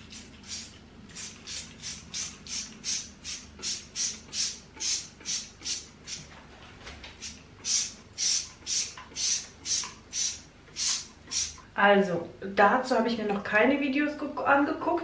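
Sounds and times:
spray bottle hissing: 0.1s - 6.2s, 7.2s - 11.6s.

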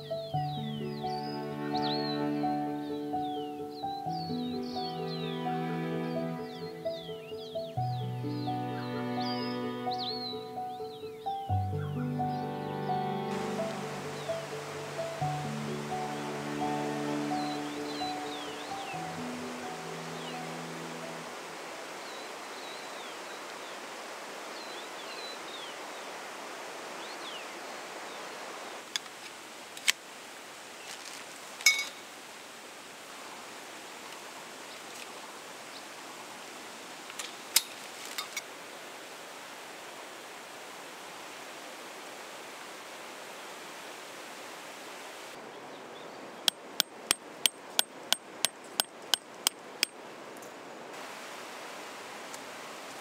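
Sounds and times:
stream flowing: 0.0s - 53.0s.

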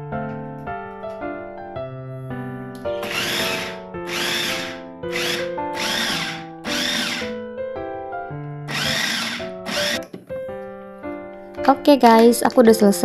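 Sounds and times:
electric food chopper whirring: 3.0s - 7.4s, 8.7s - 10.0s.

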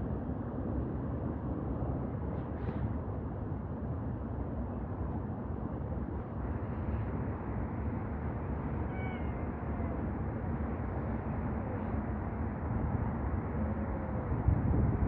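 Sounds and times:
low background rumble: 0.0s - 15.0s
cat meowing: 8.8s - 10.0s.

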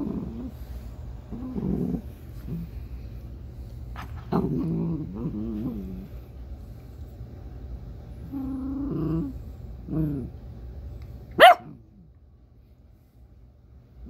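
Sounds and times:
dog growling: 0.0s - 2.9s, 4.0s - 6.3s, 8.2s - 10.4s.

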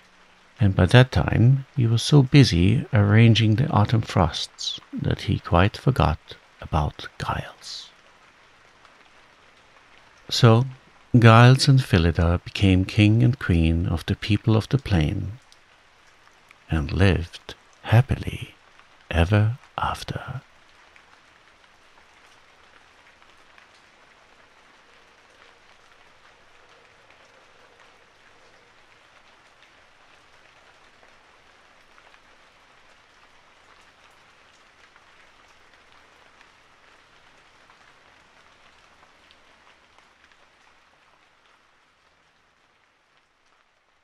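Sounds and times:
soft steady rain: 0.0s - 44.0s.

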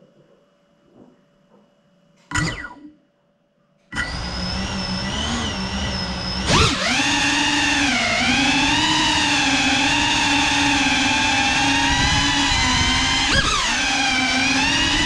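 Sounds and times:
drone motors whining: 2.3s - 2.9s, 3.9s - 15.0s.

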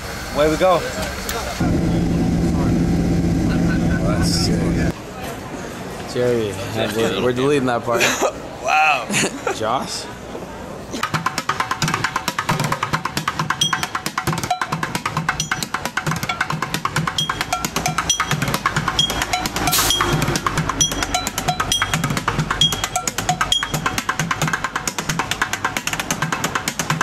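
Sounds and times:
background music with fast drumming: 11.1s - 27.0s.

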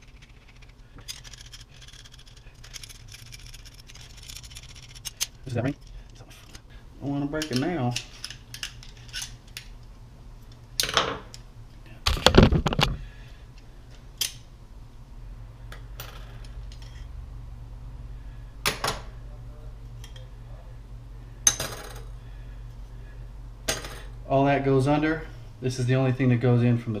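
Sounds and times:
metal parts clinking and rattling: 0.0s - 6.6s, 7.4s - 9.6s.

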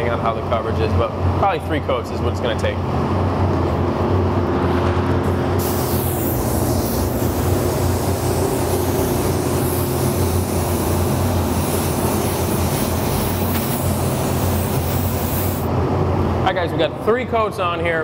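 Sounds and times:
fan humming: 0.0s - 18.0s
spray gun hissing: 5.5s - 15.7s.

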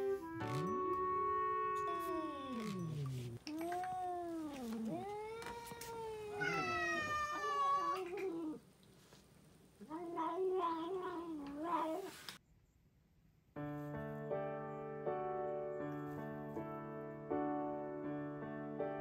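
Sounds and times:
cat yowling angrily: 1.2s - 3.4s, 4.0s - 8.6s.

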